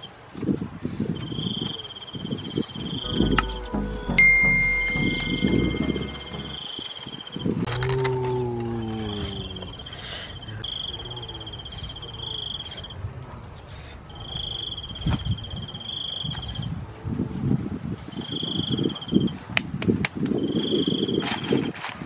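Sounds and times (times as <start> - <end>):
falling chime-like tone: 3.0 - 6.8
insect trilling: 7.9 - 12.9.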